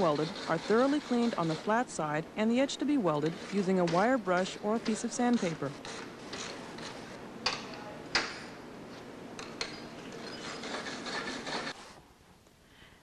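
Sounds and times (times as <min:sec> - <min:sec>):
wire brush scrubbing metal: 0:00.0 - 0:02.0, 0:10.1 - 0:11.8.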